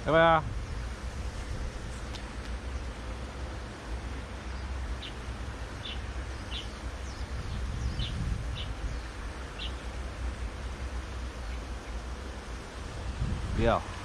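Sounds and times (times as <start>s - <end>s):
low steady rumble: 0.0s - 14.0s
bird chirping: 4.4s - 5.2s, 5.8s - 9.9s.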